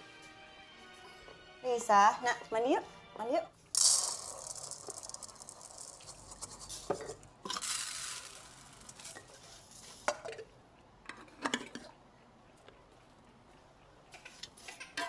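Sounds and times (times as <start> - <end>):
dry rice being poured: 3.8 - 9.1.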